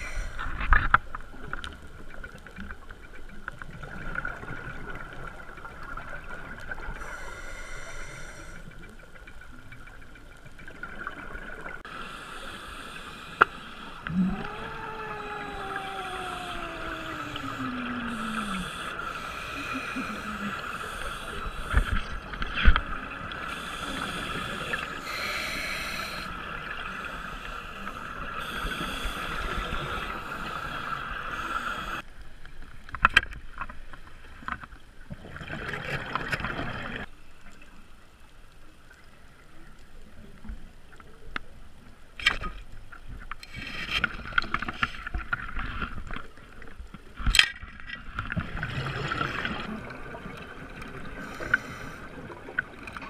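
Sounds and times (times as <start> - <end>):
underwater water sound: 0.0 - 53.0
scuba exhaust bubbles: 10.7 - 32.0, 48.3 - 53.0
boat motor whine underwater: 11.9 - 32.0.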